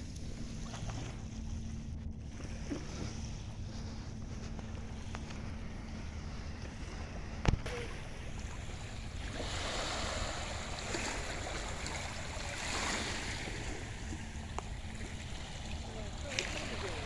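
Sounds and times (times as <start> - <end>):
wind rumble on microphone: 0.0 - 17.0
waves lapping on pebbles: 7.7 - 17.0.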